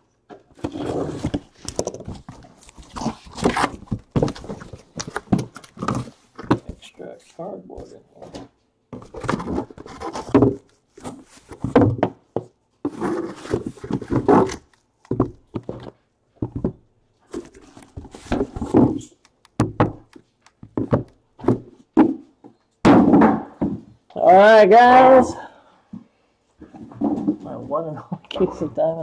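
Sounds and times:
cardboard boxes scraping and thunking: 0.4s - 7.0s, 8.2s - 12.2s, 12.8s - 19.2s.

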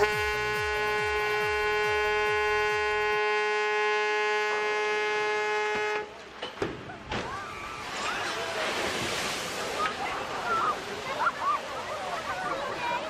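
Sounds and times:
ship's horn blast: 0.0s - 6.2s.

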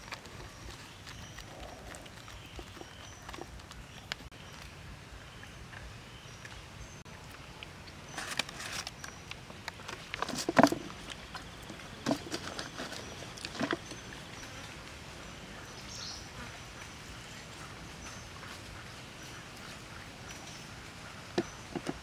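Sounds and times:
rice paper crackling: 0.0s - 4.8s, 8.1s - 13.8s.

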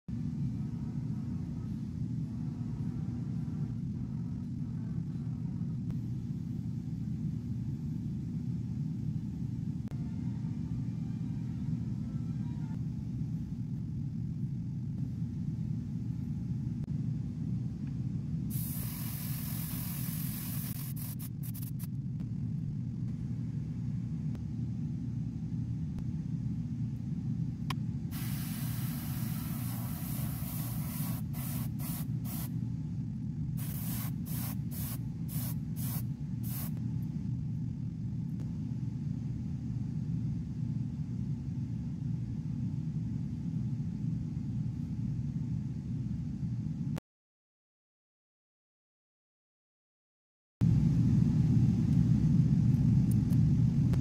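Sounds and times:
steady low hum: 0.1s - 47.0s, 50.6s - 54.0s
bursts of hissing: 18.5s - 21.9s, 28.2s - 32.5s.

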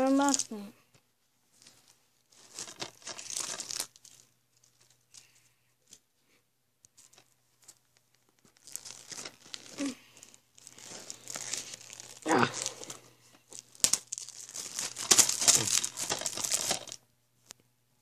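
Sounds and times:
plastic wrap tearing and crinkling: 1.6s - 5.3s, 7.1s - 17.0s.

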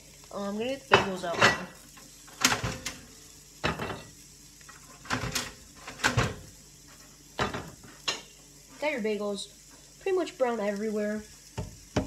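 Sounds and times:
oven door and metal tray clattering: 2.4s - 3.0s, 5.0s - 6.5s.

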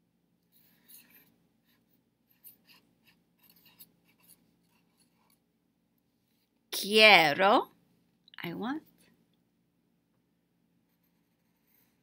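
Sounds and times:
marker scratching on board: 0.6s - 5.4s, 10.9s - 12.0s.

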